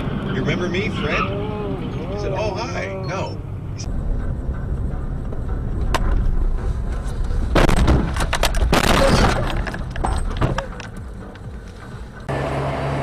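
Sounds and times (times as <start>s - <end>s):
low cabin and road rumble: 0.0s - 13.0s
car crash impacts and breaking: 7.5s - 10.7s.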